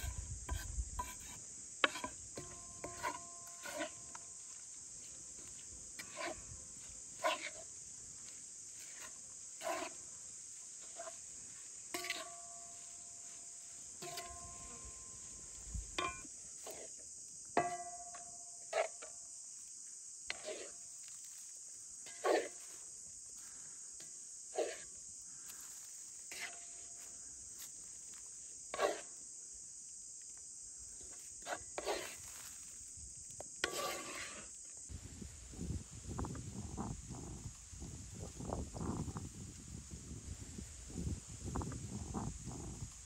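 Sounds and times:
wooden spoon scraping metal pan: 0:00.0 - 0:04.1, 0:06.0 - 0:06.4, 0:07.2 - 0:07.6, 0:08.8 - 0:10.0, 0:11.9 - 0:12.3, 0:20.3 - 0:20.7, 0:26.3 - 0:26.6, 0:28.8 - 0:29.1, 0:31.4 - 0:32.2, 0:33.6 - 0:34.5
high insect chirring: 0:24.9 - 0:43.0.

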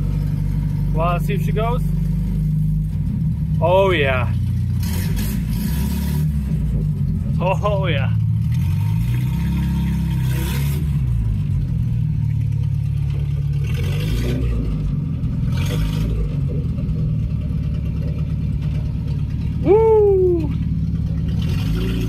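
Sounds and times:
truck engine running: 0:00.0 - 0:22.0
man whooping: 0:19.6 - 0:20.6.

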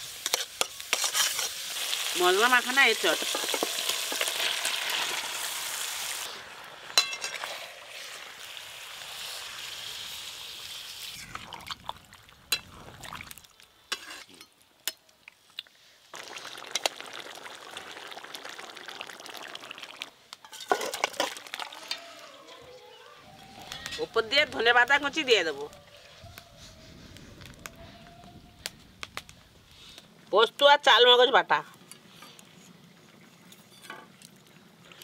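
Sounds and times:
metal spatula scraping a pan: 0:00.0 - 0:01.7, 0:13.9 - 0:14.5
food sizzling in hot oil: 0:00.0 - 0:14.5, 0:16.1 - 0:22.3.

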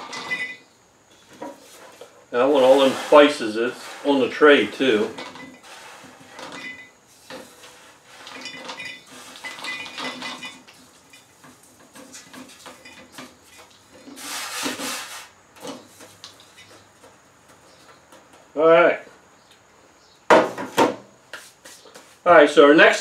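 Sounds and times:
pecans scraping off baking sheet: 0:01.2 - 0:17.2.

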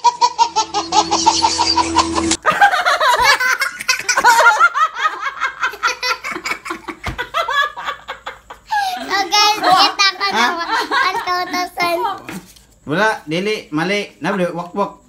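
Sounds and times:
baby laughing: 0:00.0 - 0:02.4, 0:03.0 - 0:04.6
woman laughing: 0:00.0 - 0:11.5.

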